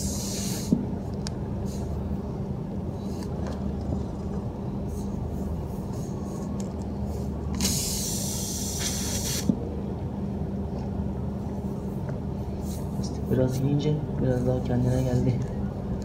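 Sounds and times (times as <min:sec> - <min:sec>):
air hissing out of tyre: 0:00.0 - 0:00.8, 0:07.1 - 0:09.6
steady low hum: 0:00.0 - 0:16.0.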